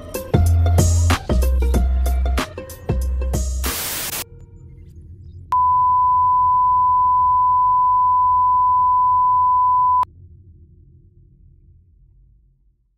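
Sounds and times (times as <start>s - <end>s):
steady test tone beep: 5.5s - 10.1s.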